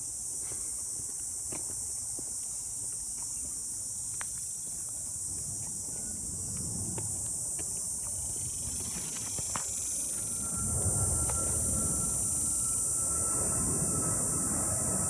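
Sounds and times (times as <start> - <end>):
insects buzzing: 0.0 - 15.0
airplane engine rumble: 5.2 - 15.0
thin steady whine: 5.3 - 15.0.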